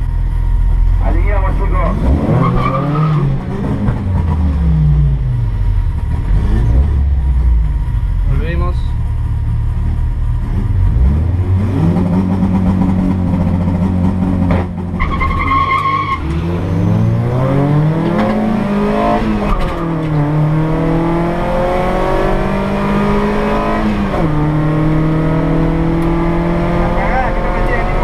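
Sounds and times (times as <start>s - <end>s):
tire squeal: 2.4s - 3.4s, 14.9s - 16.9s
drag car engine revving: 9.0s - 28.0s.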